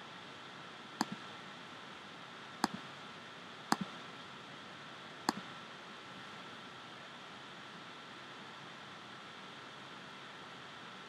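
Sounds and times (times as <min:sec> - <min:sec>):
steady background hiss: 0:00.0 - 0:11.0
computer mouse clicks: 0:01.0 - 0:01.2, 0:02.6 - 0:02.8, 0:03.7 - 0:03.9, 0:05.3 - 0:05.5.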